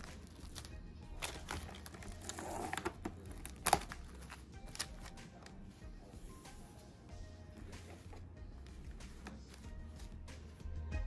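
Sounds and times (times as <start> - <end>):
plastic cling wrap crinkling: 0.0 - 5.5.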